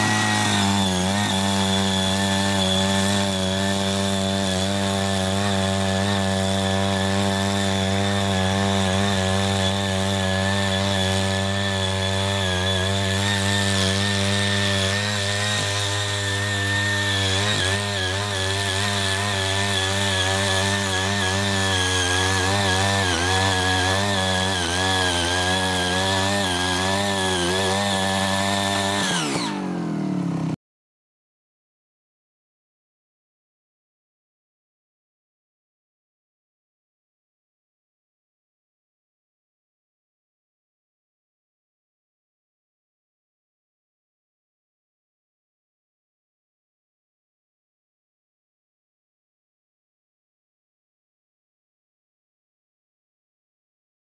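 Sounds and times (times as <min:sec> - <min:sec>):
small tiller engine running: 0:00.0 - 0:30.6.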